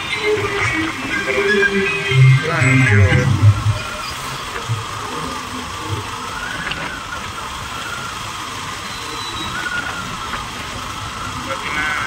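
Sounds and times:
motorcycle engine running: 0:00.0 - 0:12.0
road noise rushing: 0:00.0 - 0:12.0.

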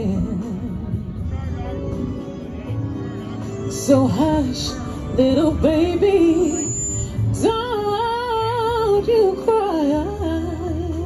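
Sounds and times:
woman singing soulful song: 0:00.0 - 0:01.3, 0:03.4 - 0:11.0
soft instrumental accompaniment: 0:00.0 - 0:11.0.

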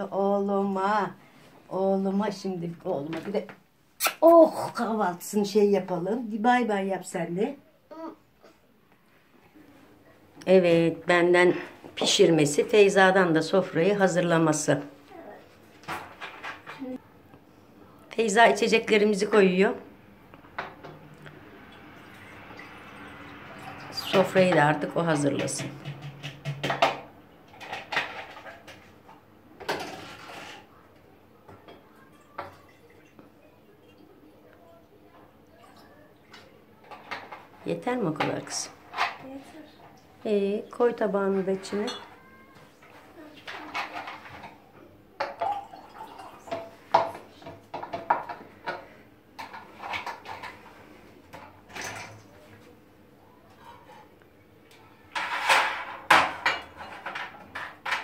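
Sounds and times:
water pouring into glass jar: 0:45.4 - 0:46.5.

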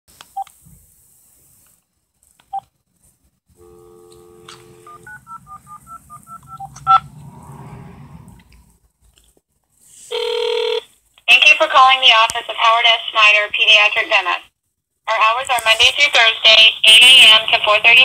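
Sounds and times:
low hum of open line: 0:03.5 - 0:09.0
dial tone: 0:03.6 - 0:07.0, 0:10.1 - 0:10.8
touch-tone dialing beeps: 0:03.8 - 0:07.0.

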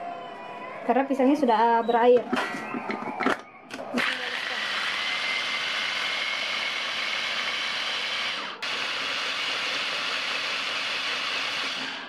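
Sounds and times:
electric food chopper whirring: 0:04.0 - 0:12.0.

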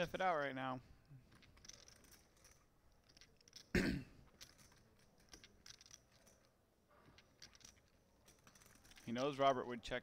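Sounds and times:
clay poker chips clicking: 0:01.3 - 0:09.6
person coughing: 0:03.7 - 0:04.2.

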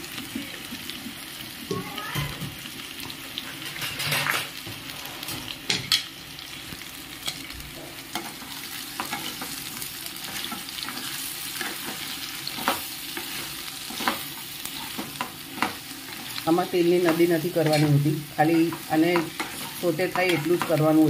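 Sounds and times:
food frying in oil: 0:00.0 - 0:21.0
spoon scraping and knocking pan: 0:07.2 - 0:21.0.

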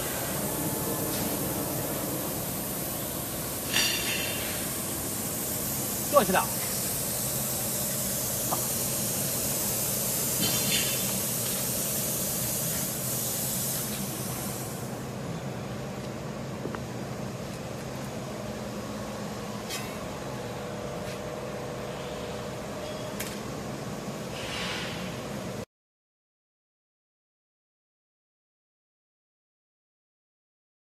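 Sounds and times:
machine humming: 0:00.0 - 0:10.5
loud hiss of air: 0:00.0 - 0:15.3, 0:24.0 - 0:25.6.

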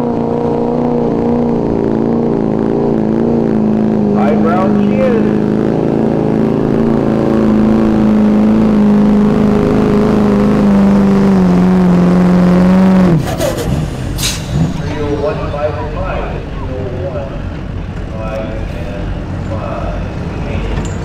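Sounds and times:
diesel truck engine under load: 0:00.0 - 0:21.0
short hiss: 0:13.6 - 0:14.7.

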